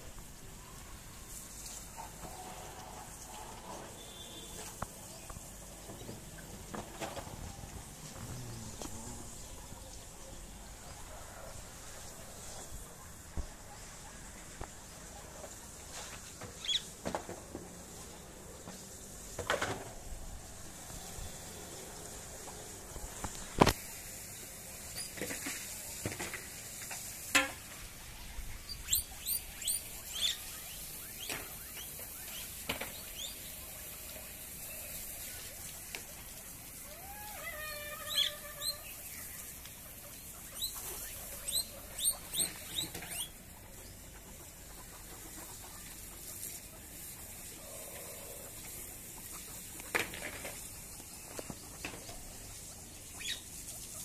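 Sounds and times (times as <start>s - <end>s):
guinea pig squeaking: 16.6s - 16.9s, 28.0s - 33.5s, 36.8s - 46.6s, 51.6s - 54.0s.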